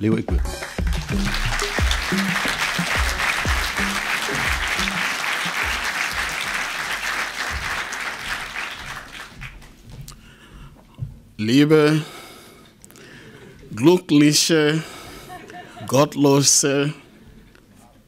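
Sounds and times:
music with low bass notes: 0:00.3 - 0:05.0
audience applauding: 0:00.4 - 0:09.8.

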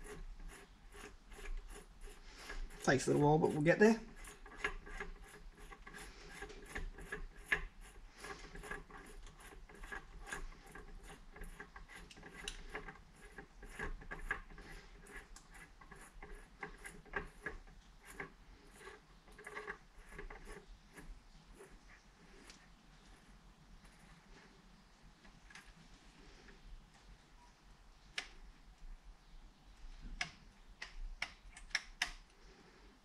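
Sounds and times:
bicycle hub clicking: 0:00.0 - 0:21.7
metal parts rubbing: 0:00.0 - 0:24.5.

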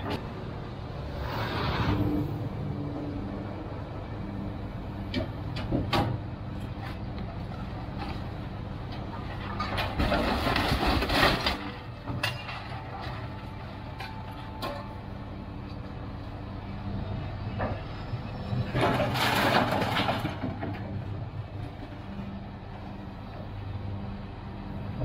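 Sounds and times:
scrap metal clattering and scraping: 0:09.0 - 0:15.0, 0:18.6 - 0:22.0
metal clanks: 0:09.3 - 0:13.2.

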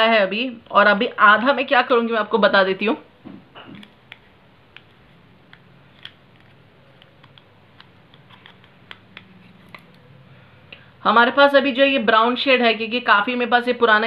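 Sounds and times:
makeup items clicking and tapping: 0:03.7 - 0:10.0.

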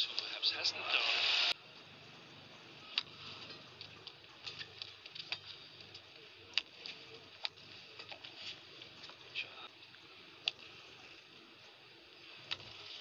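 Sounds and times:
loud burst of noise: 0:01.0 - 0:01.6.

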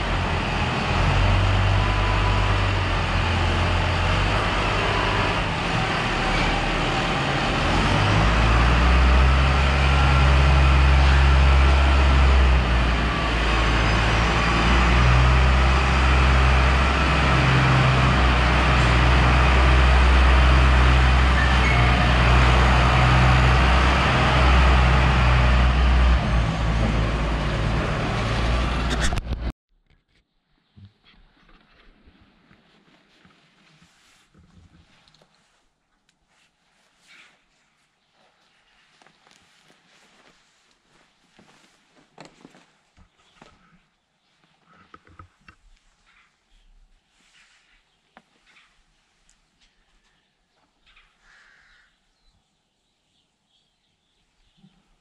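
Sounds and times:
tractor diesel engine under load: 0:00.0 - 0:29.5.

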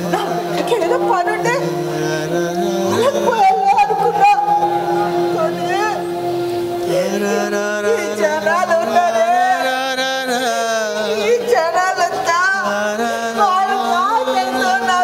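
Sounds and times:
low drone note: 0:00.0 - 0:11.1
person singing ornamented melody: 0:00.0 - 0:15.0.

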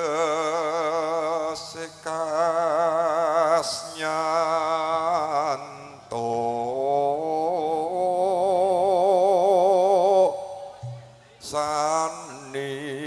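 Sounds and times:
man singing with vibrato: 0:00.0 - 0:13.0.

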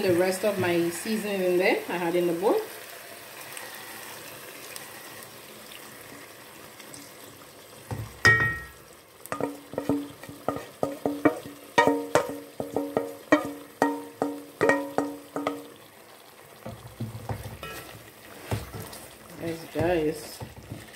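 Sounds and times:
chicken sizzling in pot: 0:00.0 - 0:20.9
wooden spoon knocking metal bowl: 0:07.9 - 0:15.8.

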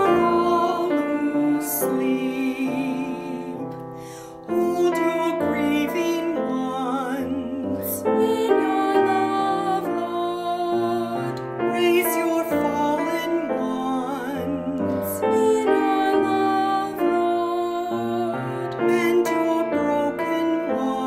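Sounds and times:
person singing a hymn: 0:00.0 - 0:21.0
piano accompaniment: 0:00.0 - 0:21.0.

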